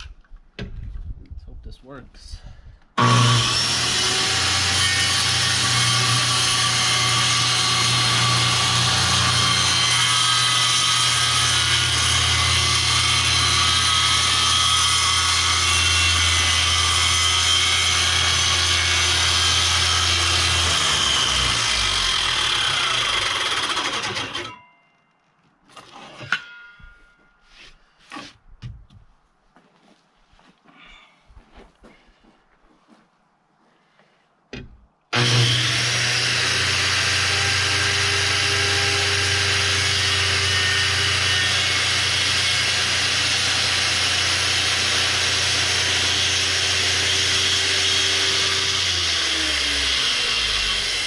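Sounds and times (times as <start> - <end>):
power saw cutting countertop: 3.0 - 24.6, 35.1 - 51.0.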